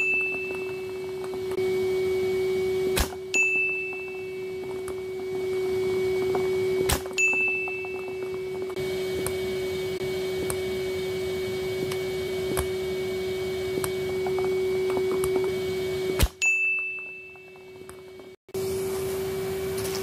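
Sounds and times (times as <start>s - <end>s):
bright ringing chime: 0.0s - 9.0s, 16.4s - 18.4s
vacuum cleaner motor humming: 0.0s - 20.0s.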